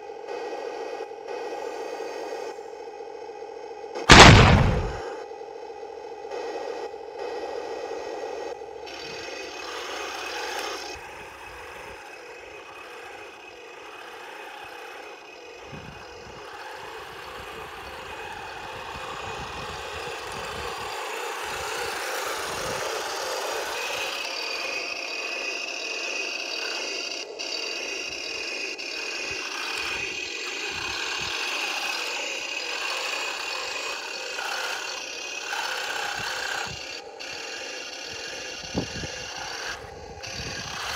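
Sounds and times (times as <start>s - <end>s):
toy tank motors whirring: 0.0s - 2.7s, 6.3s - 40.9s
steady high whine: 0.0s - 40.9s
plastic tracks rattling on gravel: 9.0s - 40.9s.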